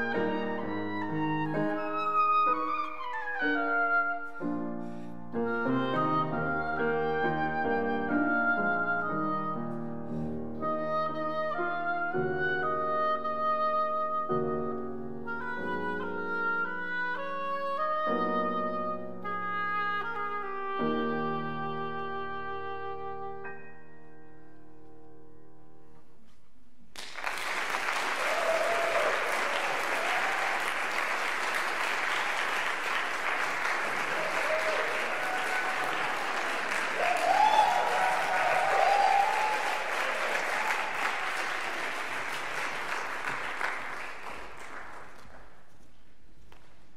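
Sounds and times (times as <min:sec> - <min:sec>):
oboe and piano note: 0:00.0 - 0:24.9
audience applause: 0:27.0 - 0:45.6
audience cheering: 0:27.2 - 0:45.0.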